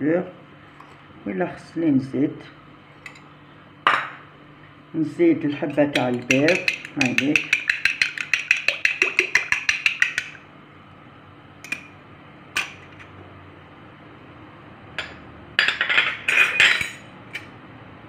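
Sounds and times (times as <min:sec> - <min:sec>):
fork beating egg in bowl: 0:05.6 - 0:10.4.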